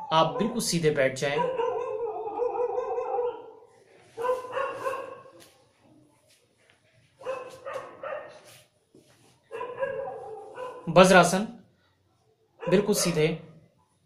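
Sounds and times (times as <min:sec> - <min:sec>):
dog barking: 0:00.3 - 0:00.6, 0:01.3 - 0:03.6, 0:04.2 - 0:05.4, 0:07.2 - 0:08.5, 0:09.5 - 0:10.9, 0:12.6 - 0:13.3.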